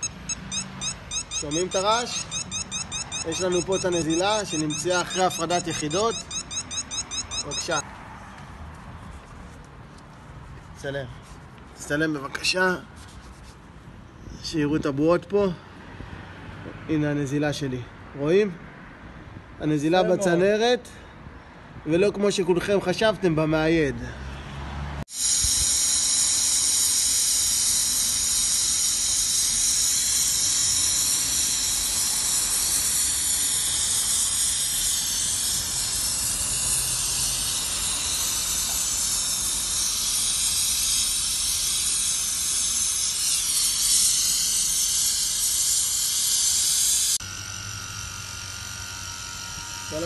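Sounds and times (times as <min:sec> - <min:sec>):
torch flame hissing: 0:25.1 - 0:47.2.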